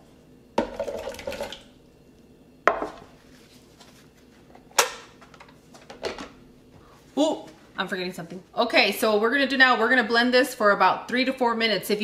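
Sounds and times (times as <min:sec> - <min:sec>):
kitchenware knocking on counter: 0:02.7 - 0:03.0.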